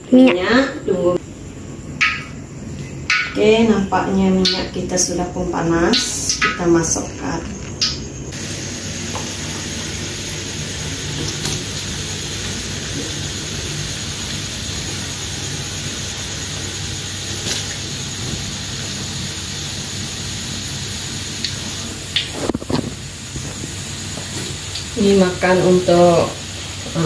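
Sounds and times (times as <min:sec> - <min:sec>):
dough sizzling in hot oil: 0:07.8 - 0:27.0.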